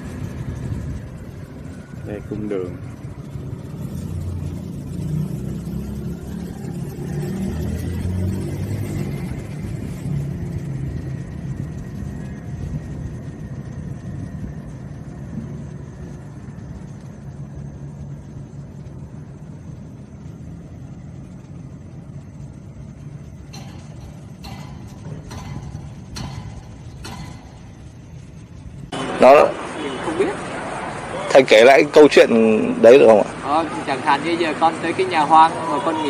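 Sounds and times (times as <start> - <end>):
vehicle engine rumble: 0.0 - 36.0.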